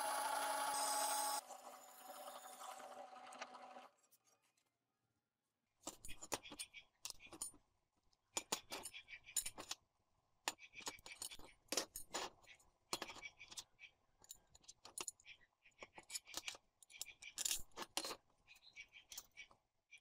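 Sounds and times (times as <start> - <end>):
drill press motor running: 0.0 - 3.9
steel pieces clinking on metal: 16.0 - 18.2.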